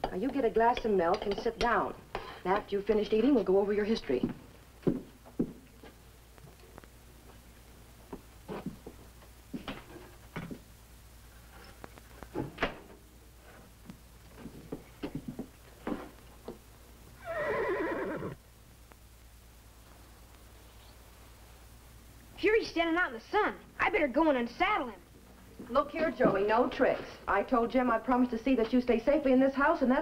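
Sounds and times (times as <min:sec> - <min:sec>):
horse whinnying: 0:17.2 - 0:18.4.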